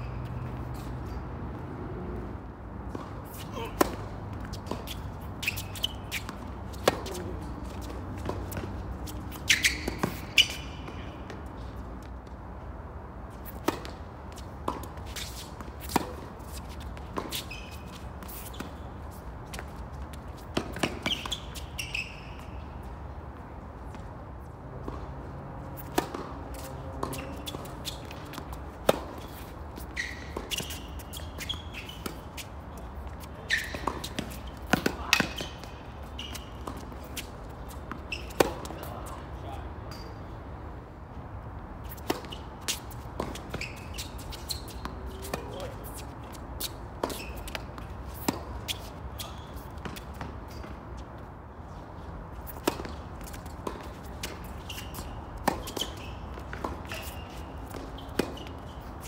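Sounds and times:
shoe squeaks: 0.0s - 1.3s, 2.9s - 11.8s, 13.4s - 23.1s, 25.7s - 40.3s, 41.8s - 51.1s, 51.7s - 59.0s
racket striking tennis ball: 2.9s - 11.0s, 25.8s - 39.0s, 41.9s - 50.8s, 52.4s - 59.0s.

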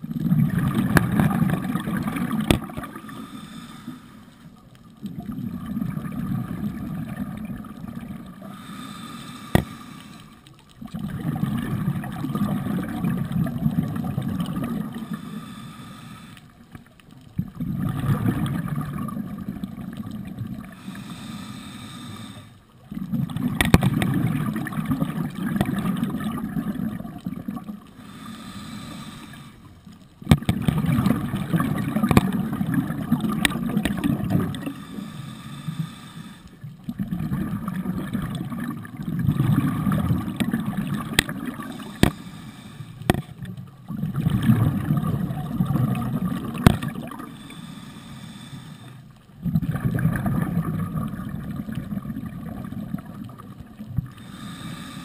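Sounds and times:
bubbling exhalations underwater: 0.0s - 3.0s, 5.0s - 8.4s, 10.8s - 15.1s, 17.4s - 20.7s, 22.8s - 27.7s, 30.2s - 34.8s, 36.9s - 42.1s, 43.8s - 47.3s, 49.4s - 54.0s
hissing regulator inhalations: 2.9s - 4.5s, 8.4s - 10.5s, 15.0s - 16.6s, 20.7s - 22.6s, 27.9s - 29.8s, 34.6s - 36.7s, 41.6s - 43.2s, 47.2s - 49.2s, 54.1s - 55.0s.

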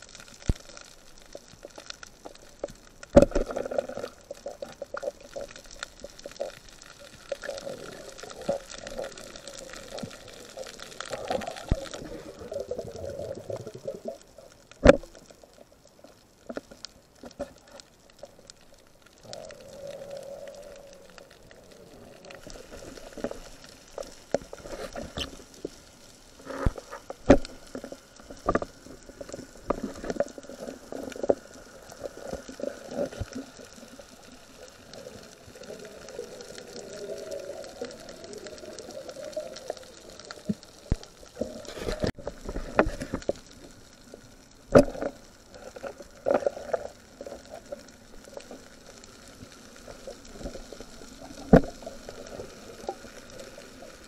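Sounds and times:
low water hiss: 0.0s - 54.0s
muffled underwater knocks and clicks: 14.8s - 15.2s, 26.5s - 31.5s.

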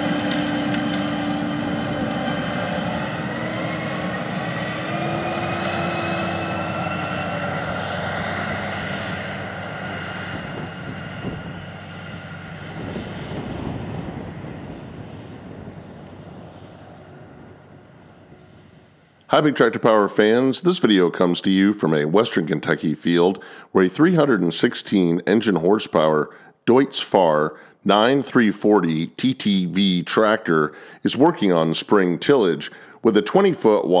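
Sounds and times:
tractor engine working under load: 0.0s - 19.1s.

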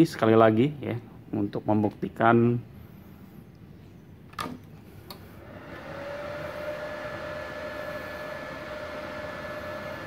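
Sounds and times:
welder humming and whining: 5.1s - 10.0s.

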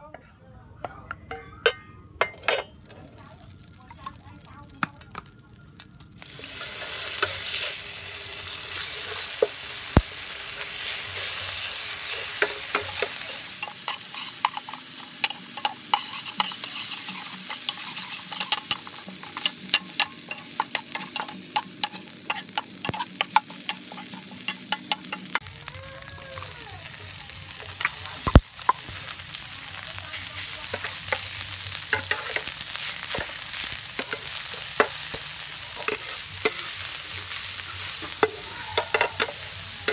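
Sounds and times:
hot oil sizzling in a frying pan: 3.1s - 39.9s
spatula scraping a pan: 10.8s - 25.4s.

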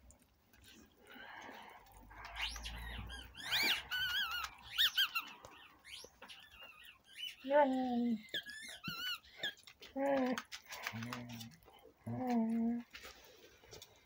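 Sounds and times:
squeaky toy squeaking: 2.3s - 7.5s, 8.2s - 9.7s.

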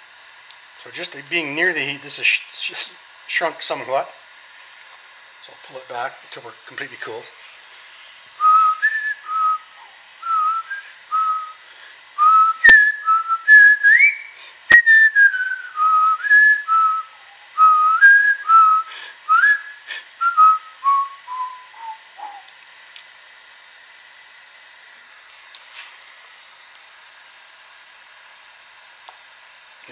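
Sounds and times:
man whistling a tune: 8.4s - 11.6s, 12.2s - 22.5s.

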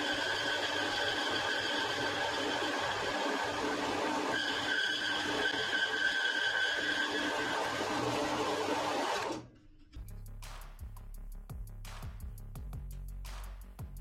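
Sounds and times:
metal bandsaw running: 0.0s - 9.4s
background music: 9.5s - 14.0s.

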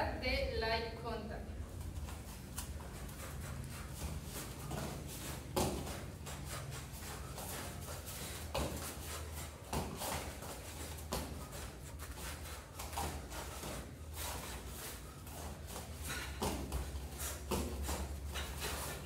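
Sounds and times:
bare feet stamping on mats: 1.8s - 19.0s.

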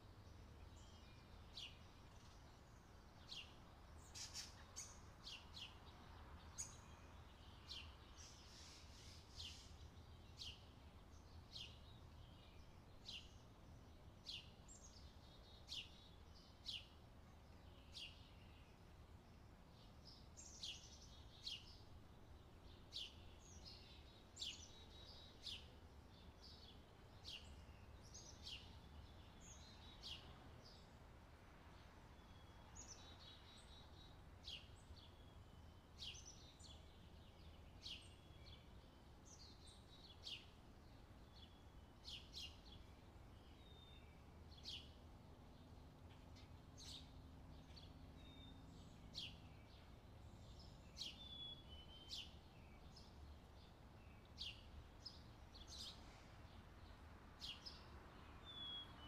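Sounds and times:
small bird chirping: 0.6s - 17.0s, 17.6s - 18.8s, 46.0s - 59.0s.

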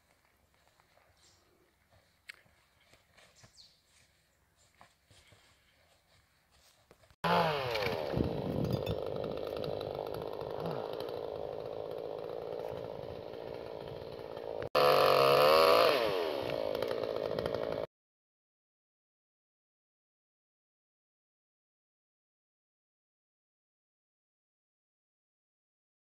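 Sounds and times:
chainsaw engine revving: 7.2s - 17.9s.

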